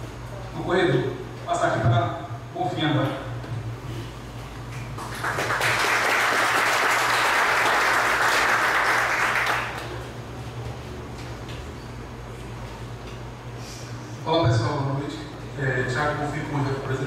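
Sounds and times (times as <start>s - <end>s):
steady low hum: 0.0s - 17.0s
audience applauding: 4.8s - 10.0s.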